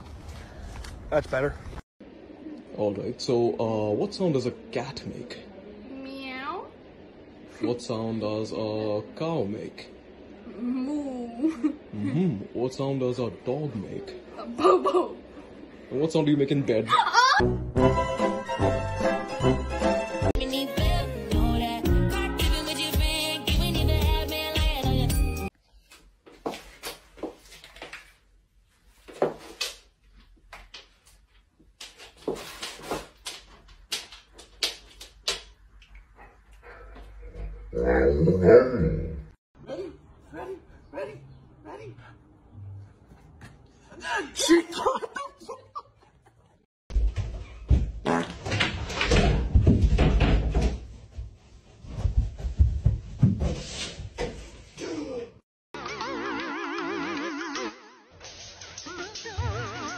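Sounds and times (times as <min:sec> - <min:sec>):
footsteps running on carpet: 0:50.9 - 0:53.7
person jumping up thumps: 0:52.0 - 0:53.6.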